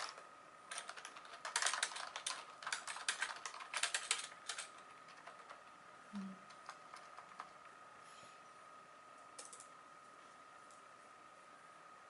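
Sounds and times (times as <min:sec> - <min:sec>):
fast typing on keyboard: 0:00.0 - 0:05.7, 0:06.5 - 0:07.6.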